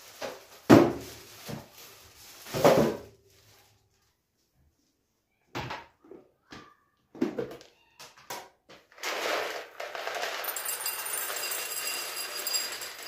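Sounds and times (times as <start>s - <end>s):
plastic bag rustling: 0.0s - 4.1s, 8.9s - 13.0s.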